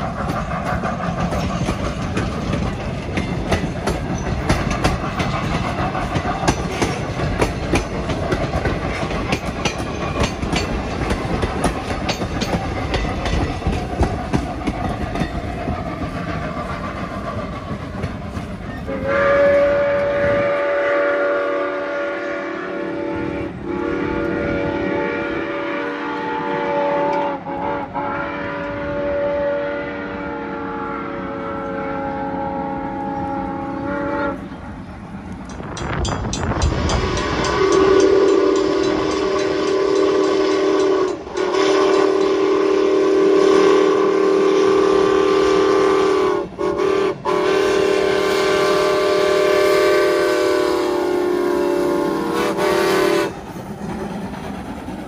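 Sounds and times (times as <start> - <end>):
steam whistle blasts: 18.8 - 34.6, 36.7 - 53.4.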